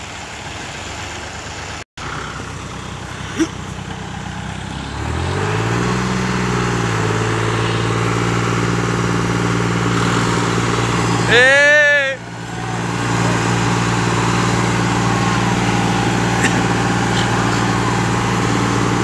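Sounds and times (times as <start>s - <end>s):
tractor diesel engines under load: 0.0s - 19.0s
engine revving to high note: 3.8s - 19.0s.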